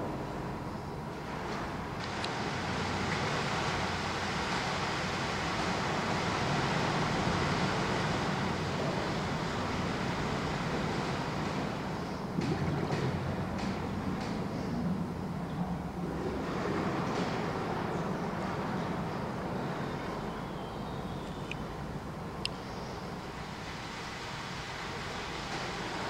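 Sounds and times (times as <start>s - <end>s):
rushing water: 0.0s - 26.0s
low hum: 11.6s - 22.9s
faint clicks: 22.4s - 22.6s.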